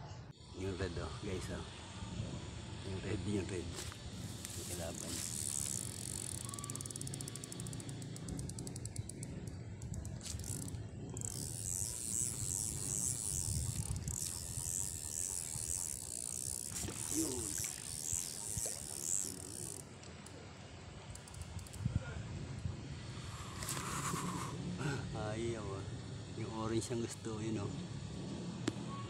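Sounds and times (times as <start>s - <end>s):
pulsing insect buzz: 3.8s - 19.9s.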